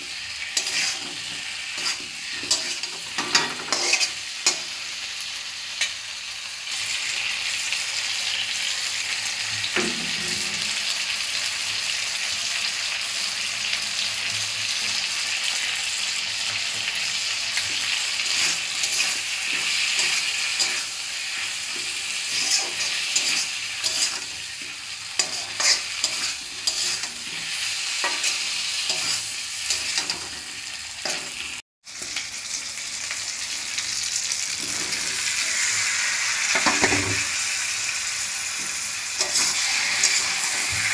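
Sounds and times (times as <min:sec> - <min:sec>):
food frying in oil: 0:00.0 - 0:40.9
spatula scraping a pan: 0:00.4 - 0:04.8, 0:17.6 - 0:31.4, 0:38.6 - 0:40.9.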